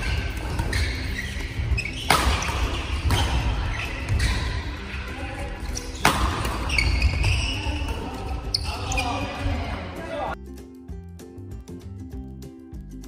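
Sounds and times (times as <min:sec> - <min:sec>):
rackets striking shuttlecock: 0:00.0 - 0:05.0, 0:05.6 - 0:08.6
shoes squeaking on wooden floor: 0:00.0 - 0:09.8.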